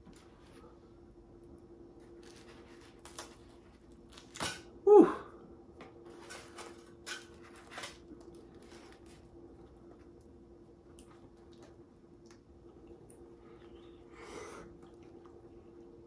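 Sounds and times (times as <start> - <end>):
person exclaiming: 4.8 - 5.4.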